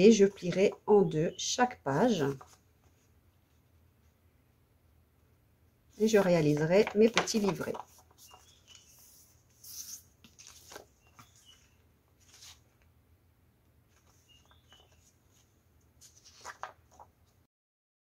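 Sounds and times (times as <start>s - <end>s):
paper sheets rustling: 2.0s - 3.1s, 6.0s - 12.9s, 13.9s - 17.4s.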